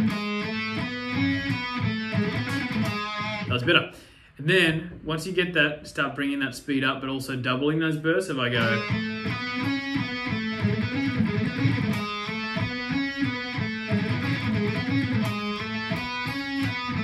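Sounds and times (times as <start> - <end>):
electric guitar fast picking: 0.0 - 3.7, 8.6 - 17.0.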